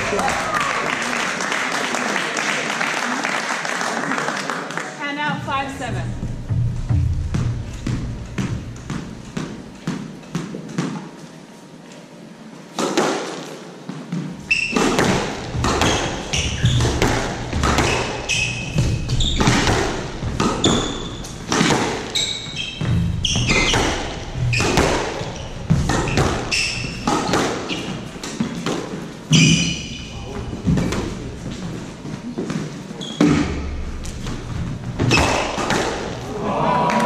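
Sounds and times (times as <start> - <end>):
squash ball cracking off rackets: 12.7 - 29.6, 35.0 - 36.3
shoes squeaking on court floor: 13.9 - 36.2.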